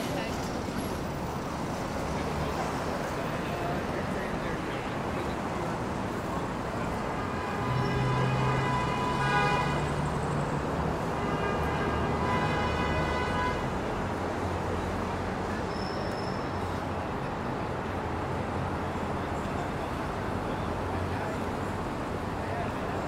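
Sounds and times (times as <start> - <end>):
city traffic noise: 0.0 - 23.0
vehicle horn blasts: 7.2 - 10.0, 11.2 - 13.7.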